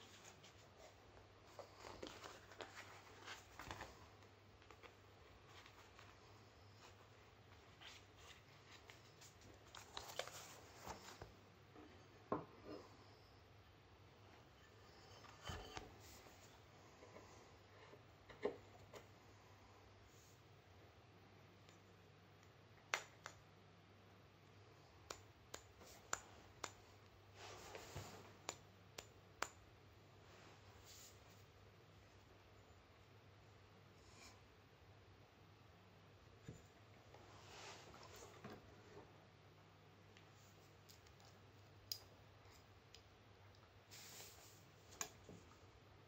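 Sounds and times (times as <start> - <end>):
soft rustle: 0.0 - 13.0, 25.8 - 28.5, 30.2 - 31.6, 36.4 - 39.1, 43.9 - 45.7
faint sharp clicks and taps: 25.0 - 29.6.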